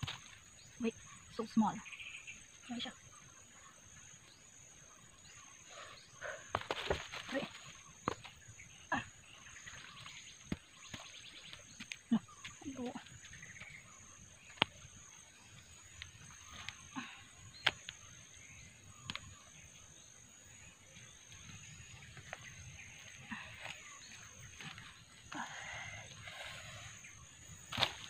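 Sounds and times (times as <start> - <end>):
roots snapping: 27.7 - 28.0.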